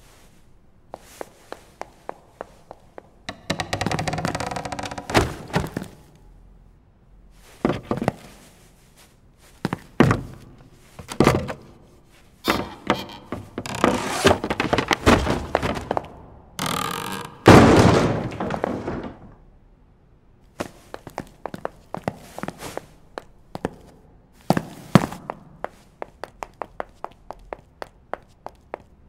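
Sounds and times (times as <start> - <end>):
heavy crash: 17.5 - 19.4.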